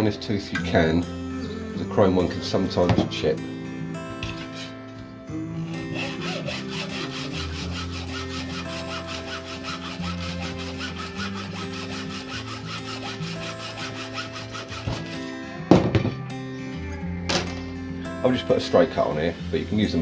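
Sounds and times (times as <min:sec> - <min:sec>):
hacksaw cutting metal: 0:04.2 - 0:04.7, 0:05.7 - 0:15.4.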